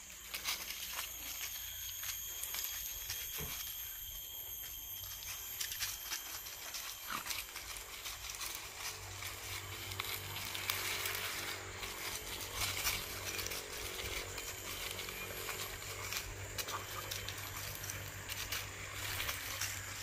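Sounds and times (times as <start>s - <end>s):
dry leaves rustling and crackling: 0.0s - 20.0s
faint high-pitched hum: 0.0s - 20.0s.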